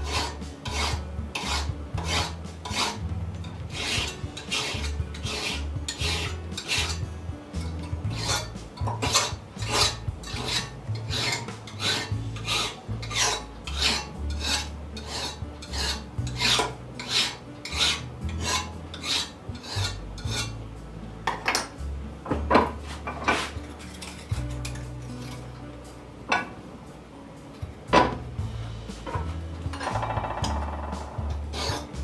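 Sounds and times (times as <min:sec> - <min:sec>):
hand file scraping steel: 0:00.0 - 0:20.6, 0:31.4 - 0:32.0.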